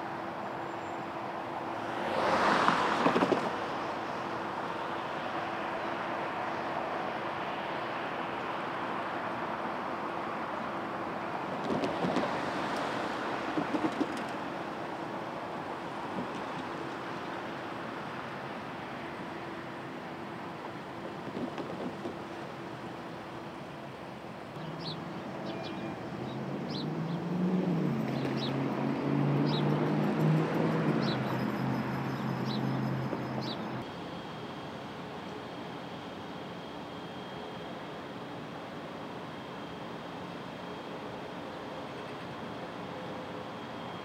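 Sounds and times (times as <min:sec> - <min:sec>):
cars driving by: 0:00.0 - 0:22.5, 0:24.5 - 0:34.3
vehicle engines humming: 0:00.0 - 0:44.0.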